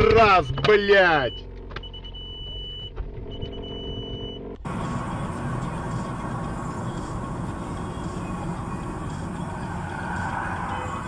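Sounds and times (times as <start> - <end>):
car driving road noise: 0.0 - 11.0
car engine idling: 0.1 - 11.0
high electronic beep: 1.2 - 4.5.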